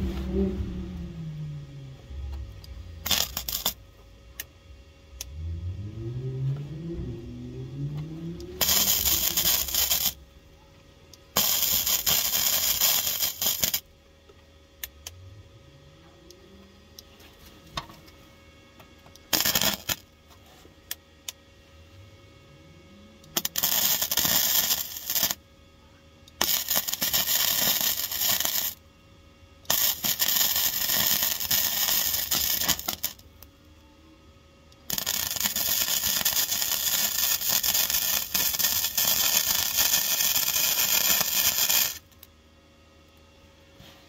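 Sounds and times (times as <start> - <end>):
welder arc crackling: 0.0 - 4.5, 7.8 - 10.3, 11.1 - 13.9, 19.1 - 20.2, 23.2 - 25.4, 26.3 - 28.8, 29.7 - 33.5, 34.8 - 42.3.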